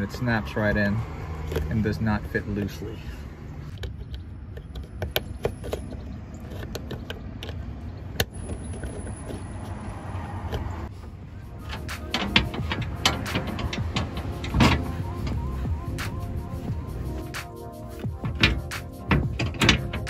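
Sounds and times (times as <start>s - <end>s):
steady low rumble: 10.9s - 20.0s.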